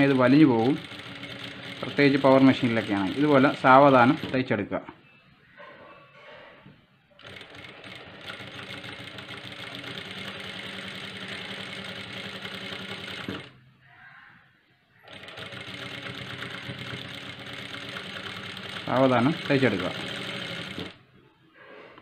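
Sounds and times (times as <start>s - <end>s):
sewing machine stitching: 0.0s - 4.6s, 7.2s - 13.6s, 15.0s - 21.0s.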